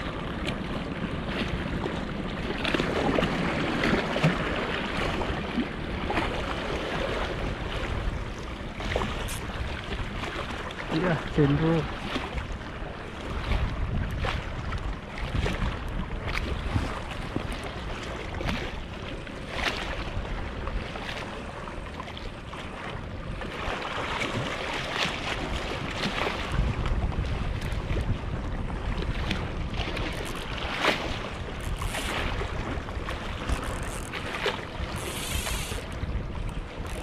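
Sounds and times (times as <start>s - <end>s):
waves splashing against rocks: 0.0s - 37.0s
wind rumbling on microphone: 0.0s - 37.0s.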